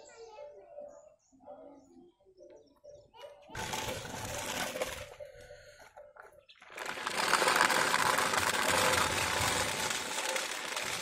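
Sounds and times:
plastic wheels rattling on concrete: 3.5 - 11.0.

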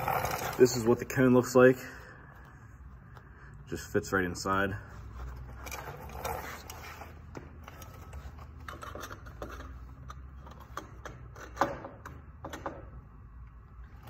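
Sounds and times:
light metallic clicks and scrapes: 5.2 - 12.6.

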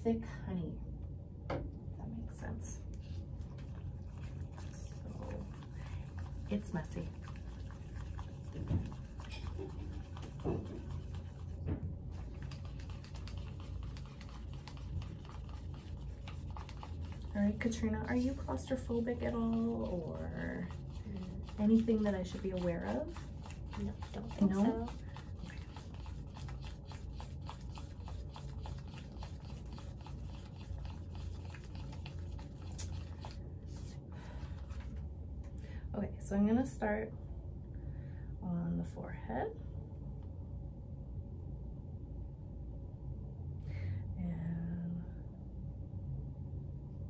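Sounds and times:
spatula squishing in bowl: 3.4 - 33.9
spatula scraping in a bowl: 7.2 - 11.4.

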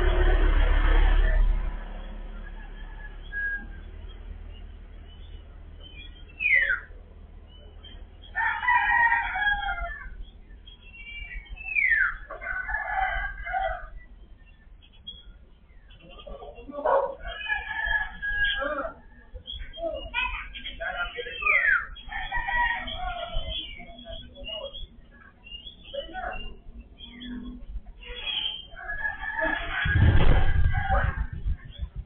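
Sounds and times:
loud rushing noise: 0.0 - 2.5, 29.8 - 32.0
rooster crowing: 2.2 - 3.9, 8.3 - 10.2, 12.4 - 14.0, 22.0 - 23.4, 28.7 - 31.3.

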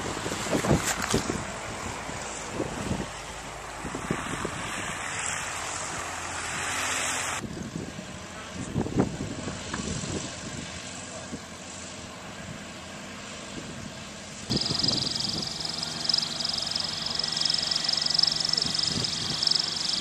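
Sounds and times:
wind buffeting microphone: 0.0 - 6.7, 7.4 - 10.8, 14.5 - 20.0
helicopter engine and rotor: 0.0 - 20.0.

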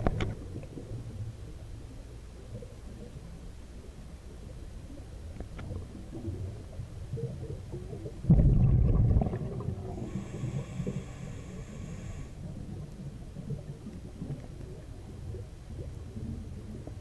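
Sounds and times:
exhaled bubbles rushing: 5.7 - 11.0
breath hissing through regulator: 10.0 - 12.4.

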